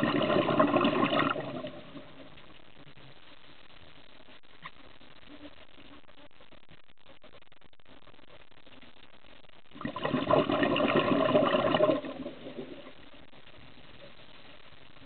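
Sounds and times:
scuba exhaust bubbles gurgling: 0.0 - 2.3, 9.7 - 13.0
faint underwater hiss: 9.7 - 15.0.

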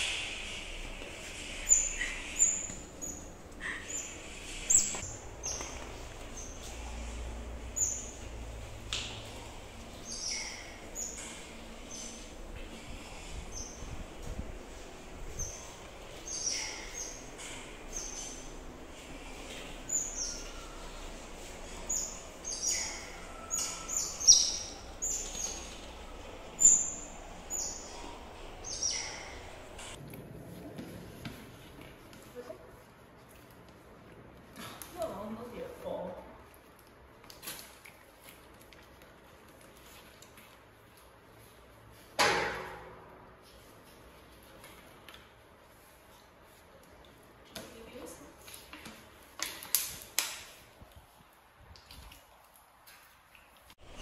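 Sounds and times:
otters chirping: 0.0 - 14.1, 14.7 - 30.0.

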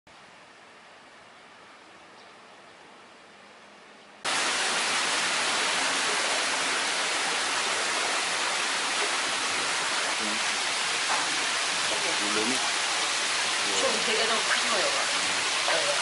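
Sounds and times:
water bubbling and splashing in tanks: 4.3 - 16.0.

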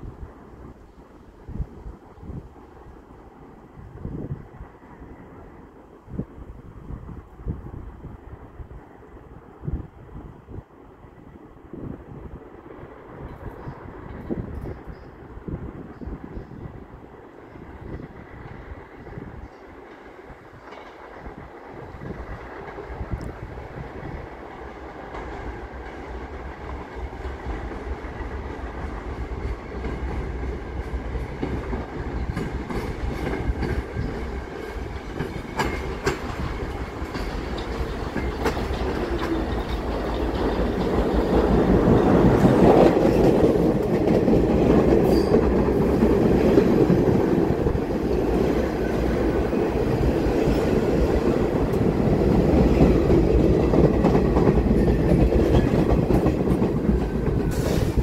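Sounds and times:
subway train rumbling: 0.0 - 58.0
wheels clacking over rail joints: 19.4 - 23.3, 24.2 - 58.0.

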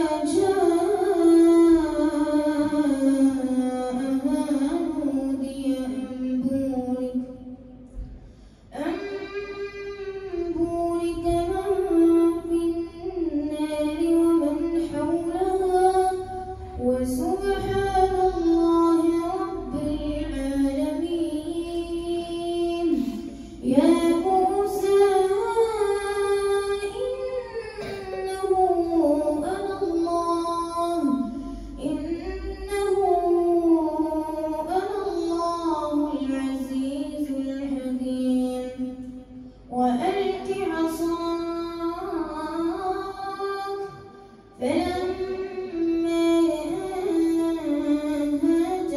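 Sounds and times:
boy reciting melodically over loudspeaker: 0.0 - 48.9.

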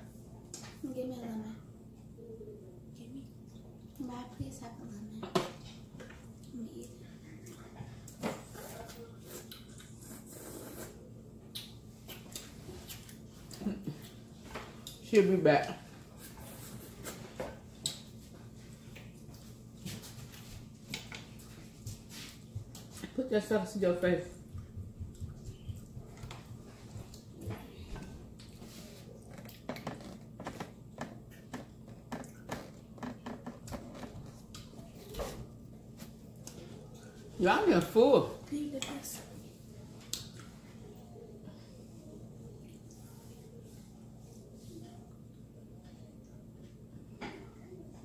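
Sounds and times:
people chewing and lip-smacking: 5.6 - 15.0, 16.2 - 23.1, 24.4 - 37.3, 39.8 - 41.9
person chewing: 7.4 - 14.2.

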